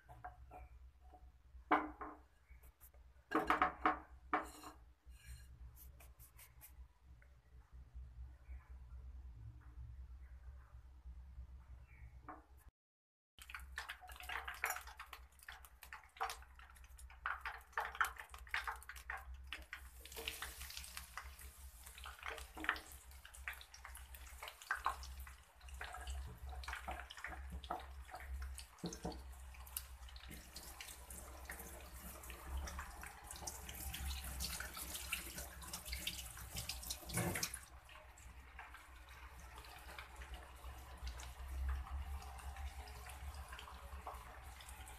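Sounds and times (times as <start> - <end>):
oil sizzling with crackles and pops: 13.4 - 44.9.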